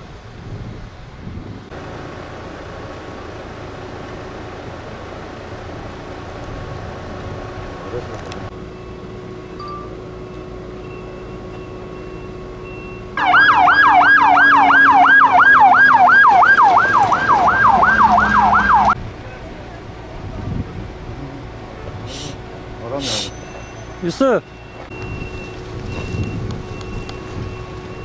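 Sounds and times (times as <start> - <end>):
fire engine siren yelping: 8.6 - 19.0.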